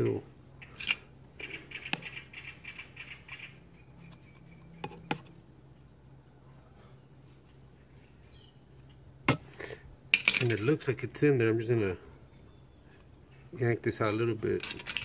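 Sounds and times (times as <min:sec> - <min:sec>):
pick scratching metal: 0:14.6 - 0:15.0.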